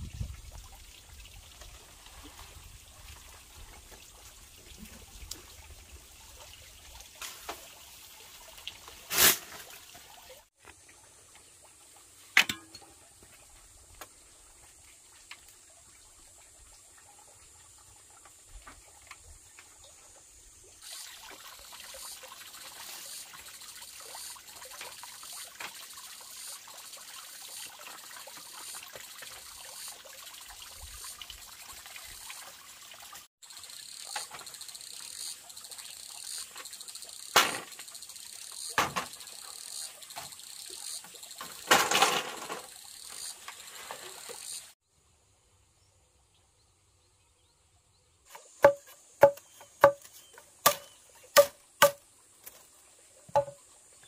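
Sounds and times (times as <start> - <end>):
high insect chirring: 33.4 - 41.4, 42.7 - 43.4, 44.1 - 44.7
bamboo poles knocking: 48.3 - 52.6, 53.3 - 53.6.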